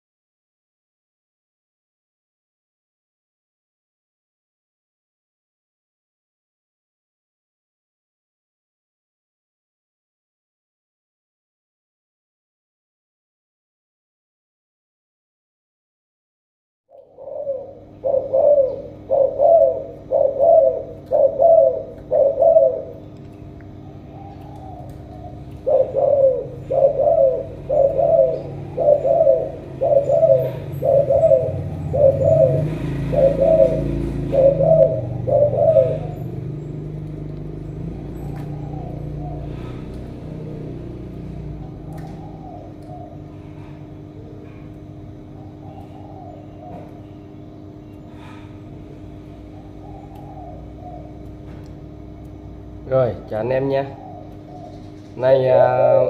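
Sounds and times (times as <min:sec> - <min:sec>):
dove cooing: 0:16.9 - 0:56.0.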